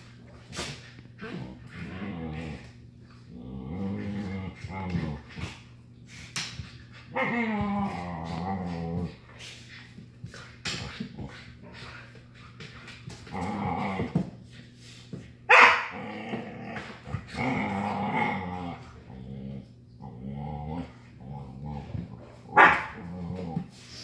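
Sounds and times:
dogs play-growling: 0.0 - 24.0
dog barking: 15.5 - 16.0, 22.6 - 23.0.

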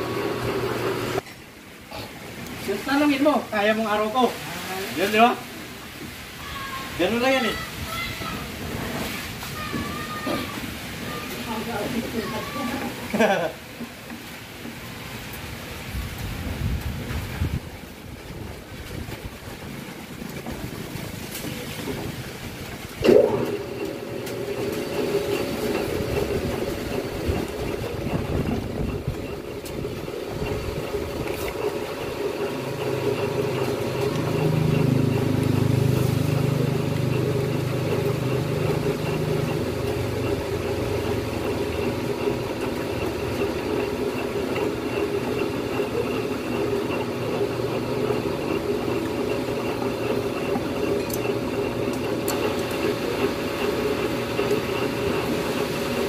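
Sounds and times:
electric machine humming: 0.0 - 1.2, 19.4 - 56.0.

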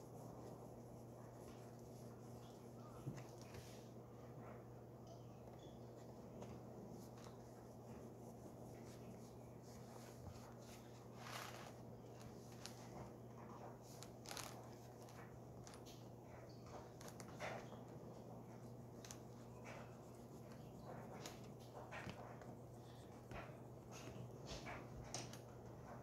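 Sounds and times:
pastel rubbing on paper: 0.0 - 3.8, 6.9 - 15.8
low steady hum: 0.0 - 26.0.

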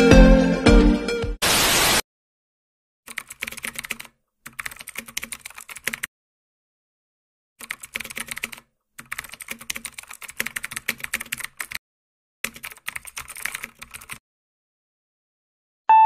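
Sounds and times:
keyboard typing: 3.1 - 6.1, 7.6 - 11.8, 12.4 - 14.2.

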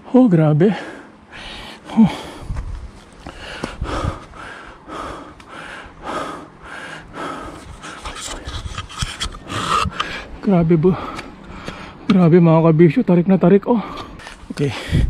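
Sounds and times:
person panting heavily: 0.7 - 8.7, 9.4 - 12.0, 13.8 - 15.0.

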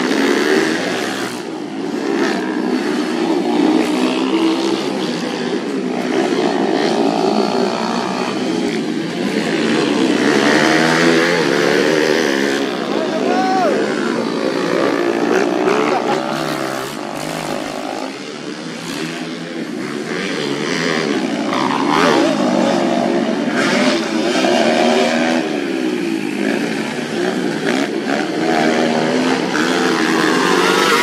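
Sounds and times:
motorcycle engines revving: 0.0 - 31.0.

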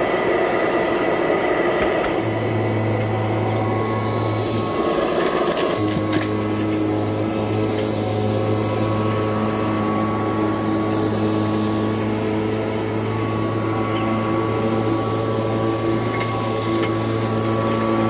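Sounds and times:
vacuum cleaner humming: 0.0 - 18.0
grit crunching in vacuum: 2.0 - 18.0.

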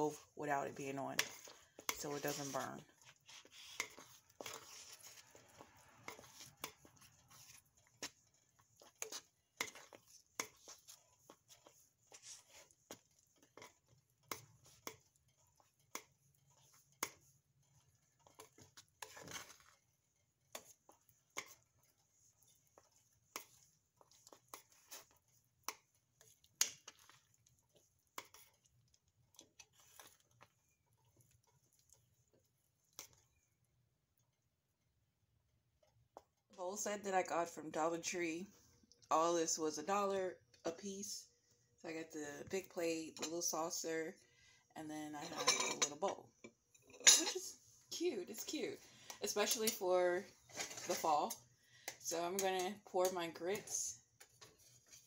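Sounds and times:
metal spoon clinking on pot: 45.3 - 46.0.

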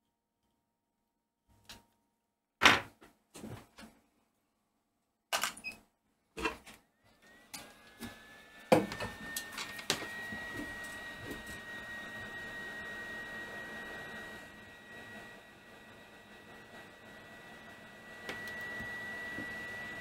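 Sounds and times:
hot air station fan whine: 7.1 - 20.0.

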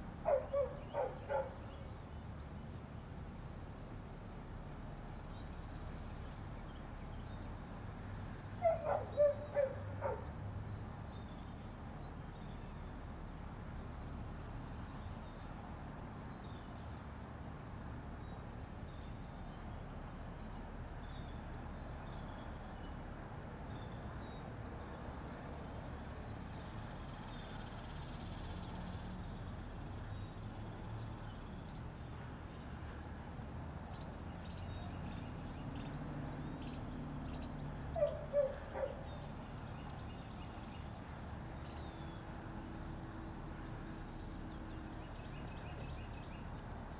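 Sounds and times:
dog barking: 0.3 - 1.6, 8.6 - 10.2, 38.0 - 39.1.

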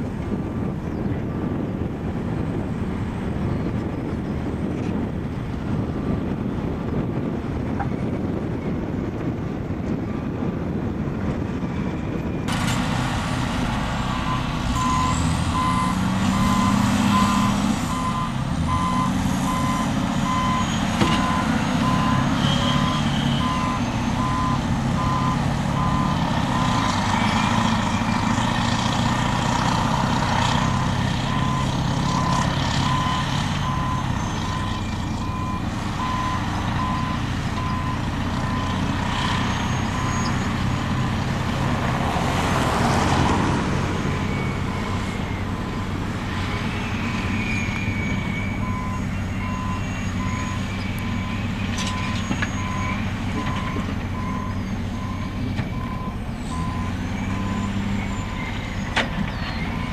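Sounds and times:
diesel engines under load: 0.0 - 59.9
reversing alarm beeping: 14.1 - 28.3, 44.0 - 59.9.

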